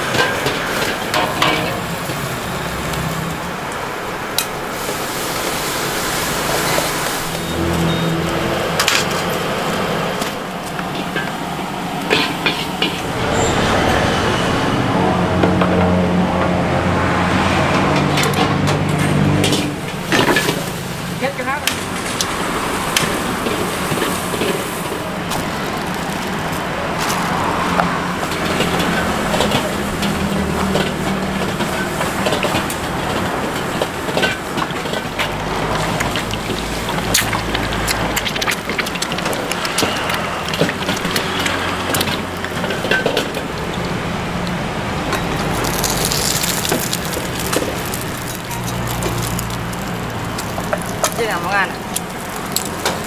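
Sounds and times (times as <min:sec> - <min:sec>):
noodles sizzling in a wok: 0:04.6 - 0:07.6, 0:45.3 - 0:53.0.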